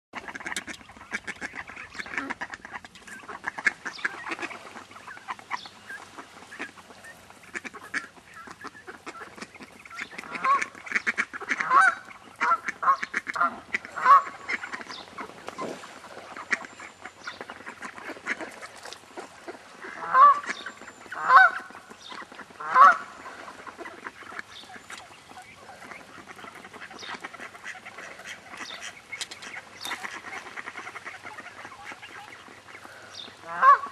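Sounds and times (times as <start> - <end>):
loud honking quacks: 0.2 - 5.4, 7.5 - 18.6, 19.8 - 21.8, 22.6 - 24.6, 29.9 - 33.9
ducks chattering: 0.2 - 33.9.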